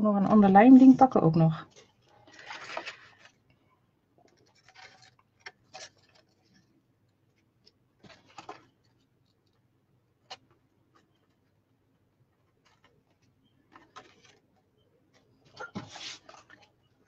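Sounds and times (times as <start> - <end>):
card stock scratching and rustling: 4.3 - 6.7.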